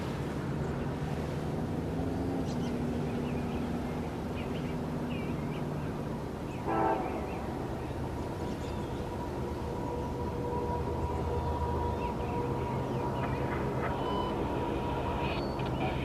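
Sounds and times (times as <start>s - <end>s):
distant train rumble: 0.0s - 16.0s
birds chirping: 0.5s - 16.0s
train horn toot: 6.6s - 7.5s, 9.2s - 15.2s.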